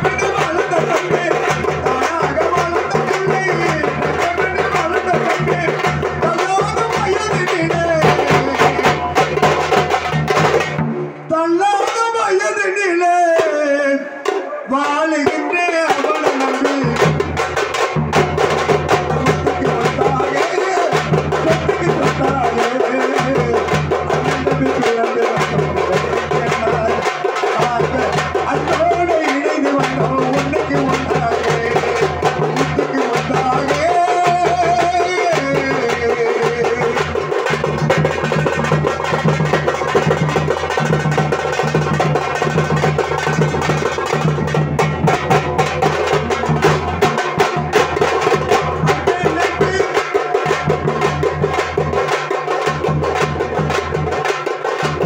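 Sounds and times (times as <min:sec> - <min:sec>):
barrel drum beating: 0:00.0 - 0:12.1, 0:14.2 - 0:55.0
frame drums struck with sticks: 0:14.2 - 0:55.0.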